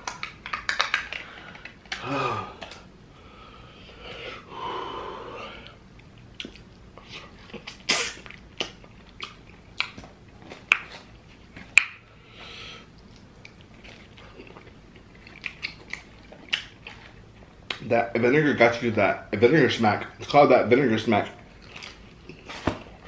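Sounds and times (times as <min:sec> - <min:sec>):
breathy sounds: 0:01.1 - 0:05.8
person chewing: 0:05.6 - 0:17.8, 0:21.5 - 0:23.0
wet lip smacks: 0:06.0 - 0:11.1.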